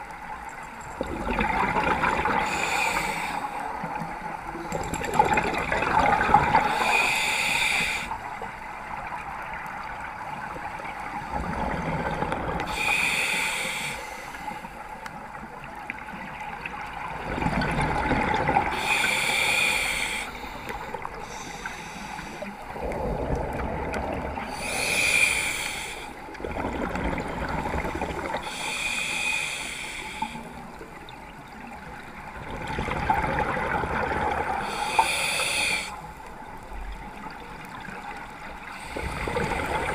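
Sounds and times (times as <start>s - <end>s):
bubbling water: 0.0s - 7.1s, 8.6s - 12.8s, 15.2s - 19.3s, 20.4s - 28.6s, 30.5s - 34.9s, 36.2s - 39.9s
hissing regulator breath: 2.4s - 3.7s, 6.6s - 8.2s, 12.7s - 14.8s, 18.7s - 22.7s, 24.5s - 26.2s, 28.4s - 30.6s, 34.6s - 36.1s.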